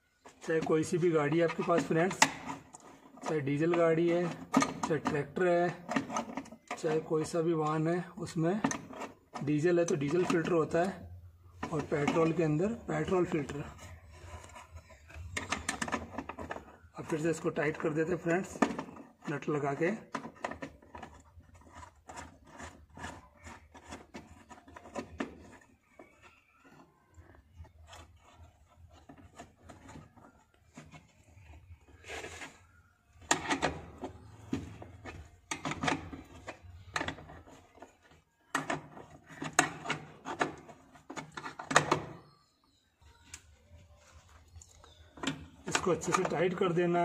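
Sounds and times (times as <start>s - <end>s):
hand tool clicking and scraping on metal: 0.2s - 32.6s, 44.6s - 47.0s.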